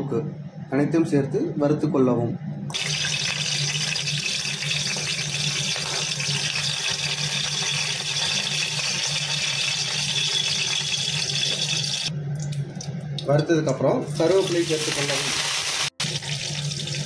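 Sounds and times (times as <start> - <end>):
low steady hum: 0.0 - 15.0
spices sizzling in hot oil: 2.7 - 12.1, 14.2 - 17.0.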